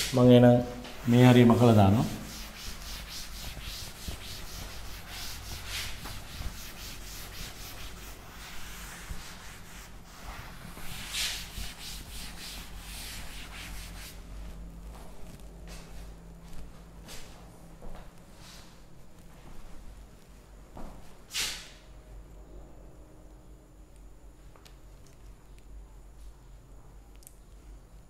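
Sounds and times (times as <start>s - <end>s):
duster rubbing on chalkboard: 0.8s - 14.3s.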